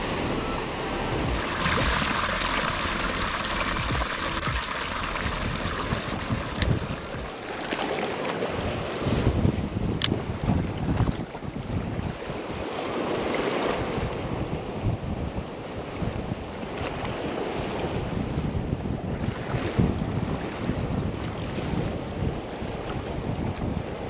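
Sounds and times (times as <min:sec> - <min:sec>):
surf washing over rocks: 0:00.0 - 0:09.8
wind buffeting microphone: 0:00.0 - 0:24.0.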